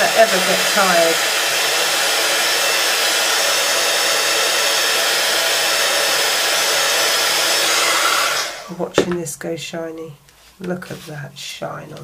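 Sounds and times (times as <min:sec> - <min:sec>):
heat tool blowing hot air: 0:00.0 - 0:08.8.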